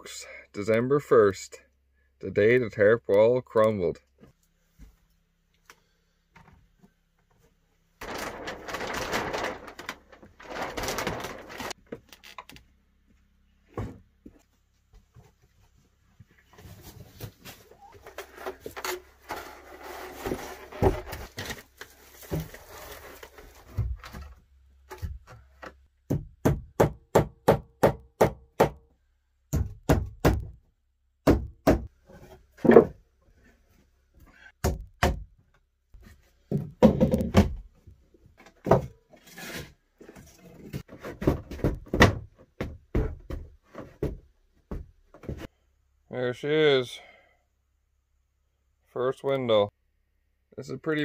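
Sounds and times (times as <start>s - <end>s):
wooden planks knocking: 36.5s - 37.7s.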